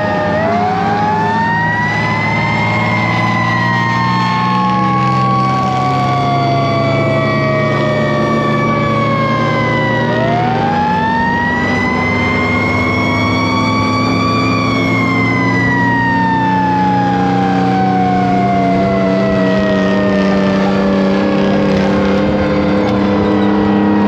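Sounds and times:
diesel engine drone: 0.0s - 24.0s
fire truck sirens winding: 0.0s - 24.0s.

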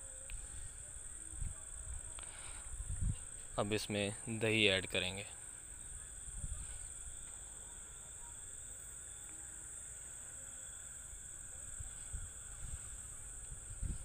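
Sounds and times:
high-pitched insect trill: 0.0s - 14.0s.

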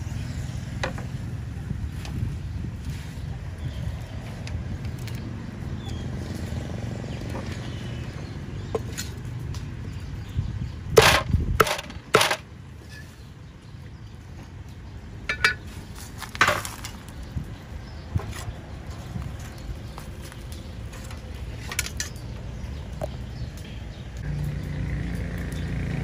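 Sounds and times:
cleaver chopping on wooden block: 11.0s - 12.4s.

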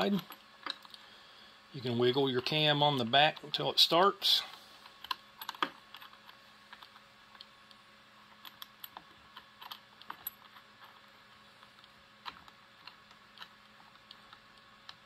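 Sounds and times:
metal clicks and ticks: 4.8s - 7.8s.

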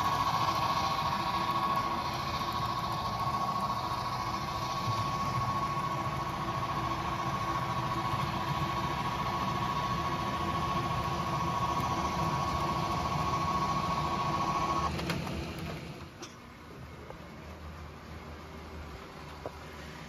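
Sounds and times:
high whine: 0.0s - 14.9s
motor hum: 0.0s - 16.2s
model train wheels rumbling on track: 0.0s - 16.3s.

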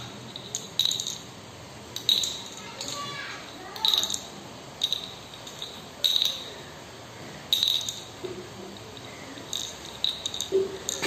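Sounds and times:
bottle cap clinking on hard surface: 8.8s - 11.0s.

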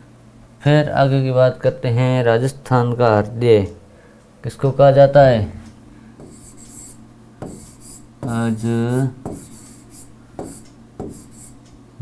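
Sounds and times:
pen scratching on touchscreen: 6.2s - 11.6s.

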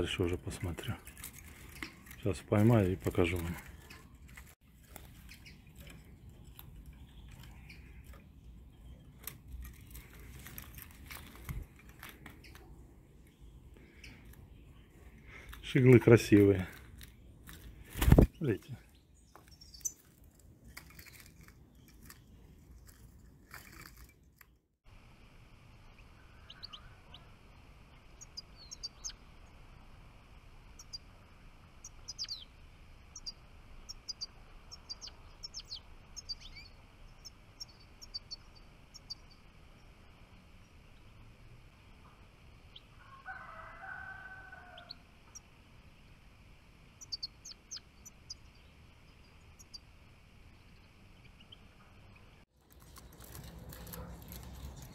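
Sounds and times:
rustling and clicks: 0.8s - 8.3s, 9.0s - 12.7s, 19.3s - 24.6s, 52.6s - 54.9s
goldfinches twittering: 31.8s - 39.9s, 47.0s - 49.8s
rooster crowing: 43.0s - 45.0s.

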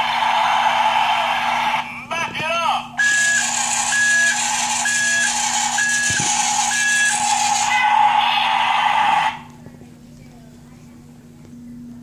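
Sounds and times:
reversing beep: 3.0s - 7.4s
toy engine noise: 3.0s - 9.5s.

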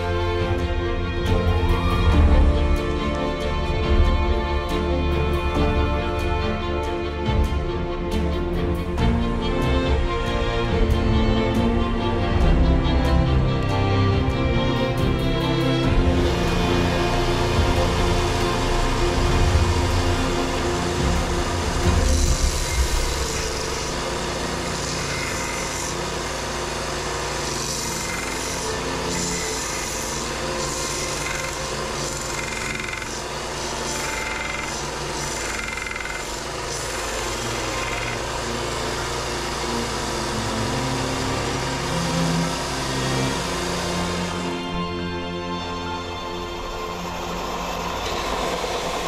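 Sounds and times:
power tool cutting wood: 13.6s - 49.0s.

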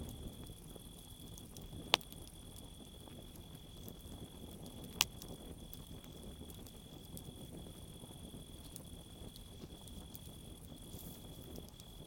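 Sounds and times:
campfire burning: 0.0s - 12.0s
cricket trilling: 0.0s - 12.0s
wood crackling pops: 1.3s - 3.2s, 3.8s - 7.3s, 8.6s - 12.0s.

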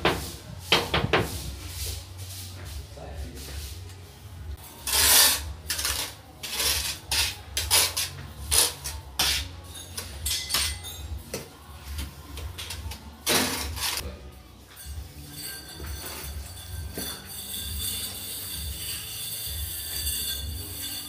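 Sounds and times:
trowel scraping mortar on tile: 4.8s - 10.1s.

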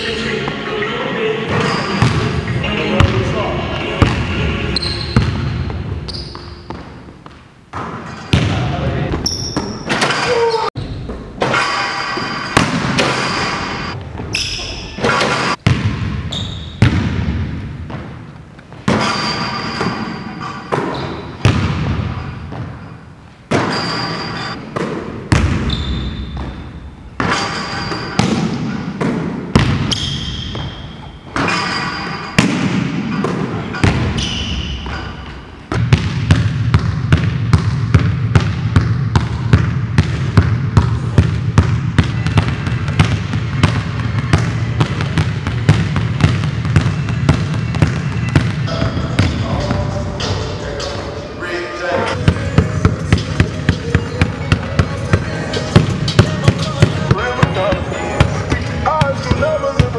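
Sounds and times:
sneaker squeaks: 1.5s - 3.1s, 4.0s - 7.1s, 9.1s - 15.6s, 16.2s - 17.0s, 18.8s - 21.5s, 22.1s - 24.6s, 25.3s - 28.9s, 29.6s - 35.6s, 52.1s - 59.9s
basketballs bouncing on hardwood: 15.6s - 18.2s, 20.7s - 22.8s, 24.7s - 26.6s, 28.2s - 31.4s, 32.4s - 35.1s, 35.7s - 49.8s, 52.2s - 59.9s.

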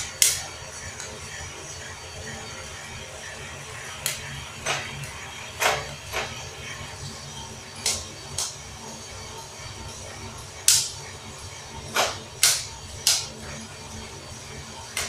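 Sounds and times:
roaster humming: 0.0s - 15.0s
coffee beans popping: 10.7s - 11.0s.

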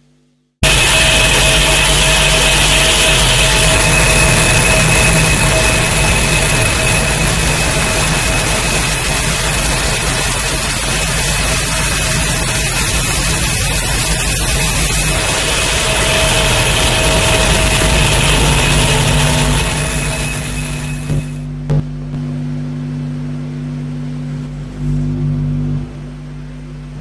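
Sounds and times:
steady high tones: 0.6s - 21.6s
loud dense low drone: 0.6s - 27.0s.

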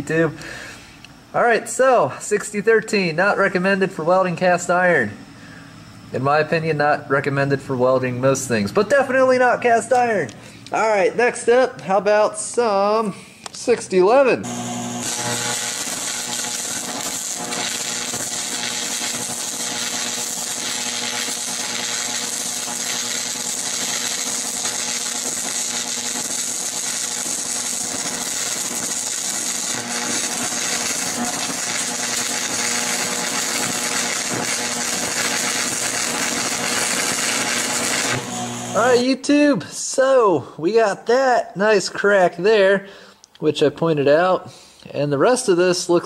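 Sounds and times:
faint steady hum: 0.0s - 40.6s
welding arc crackling and hissing: 8.3s - 39.2s.

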